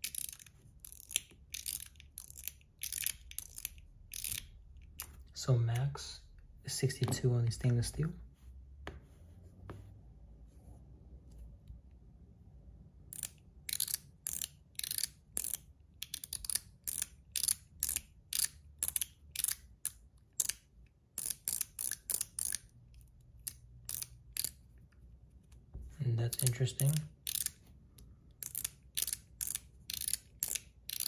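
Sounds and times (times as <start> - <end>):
metal fidget toy clicks: 28.4 - 31.0.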